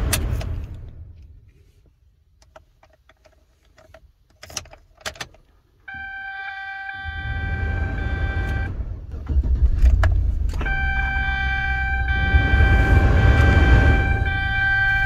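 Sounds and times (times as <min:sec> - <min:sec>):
electronic warning chime: 0:05.9 - 0:08.7, 0:10.7 - 0:15.0.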